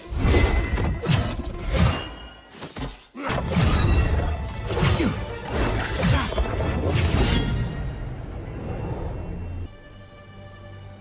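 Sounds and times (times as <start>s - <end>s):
dramatic music: 3.1s - 11.0s.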